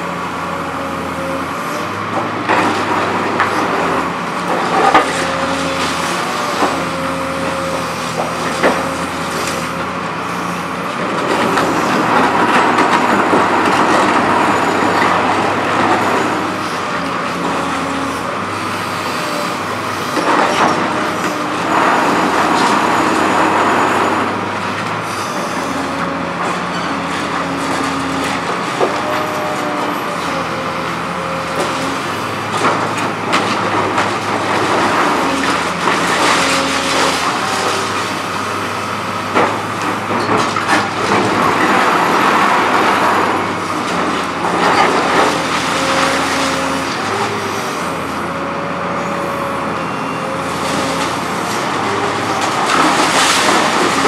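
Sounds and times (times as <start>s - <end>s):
excavator engine and hydraulic whine: 0.0s - 54.0s
concrete crunching and rubble falling: 50.4s - 54.0s.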